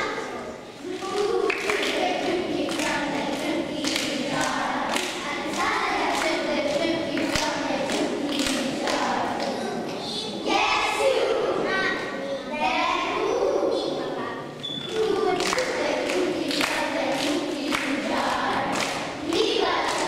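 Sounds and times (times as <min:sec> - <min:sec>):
children singing together: 0:00.0 - 0:20.0
hands clapping: 0:00.9 - 0:09.6, 0:14.9 - 0:20.0.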